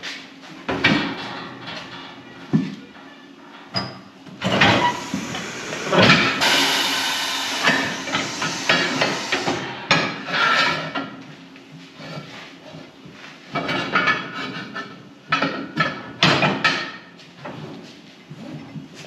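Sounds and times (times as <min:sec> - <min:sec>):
metal clanks and knocks: 0:00.6 - 0:06.4, 0:13.5 - 0:17.7
steady hiss: 0:04.7 - 0:09.7.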